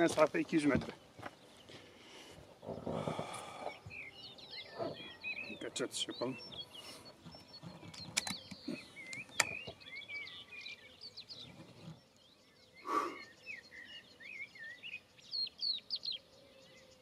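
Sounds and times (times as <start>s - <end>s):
small birds chirping: 0.0s - 17.0s
sharp clicks: 7.9s - 9.7s.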